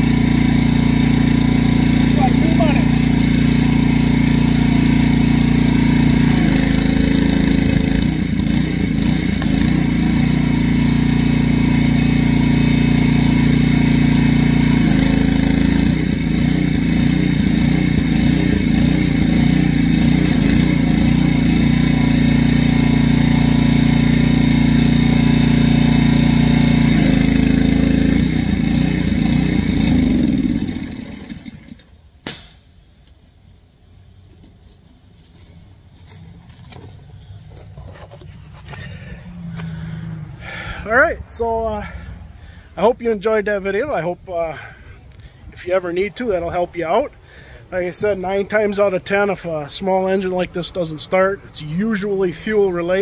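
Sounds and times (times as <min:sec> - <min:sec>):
pressure washer engine running: 0:00.0 - 0:32.0, 0:38.5 - 0:42.7.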